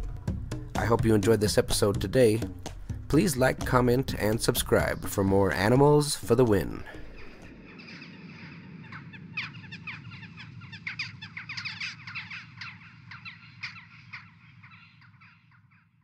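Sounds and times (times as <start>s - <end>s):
many birds calling: 3.2s - 16.0s.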